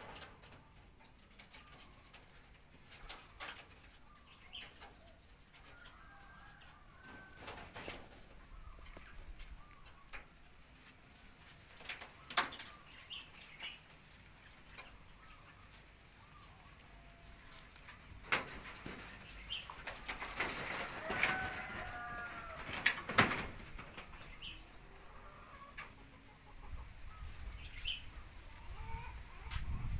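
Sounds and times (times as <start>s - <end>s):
knocks and rattles on metal roofing: 22.5s - 24.2s.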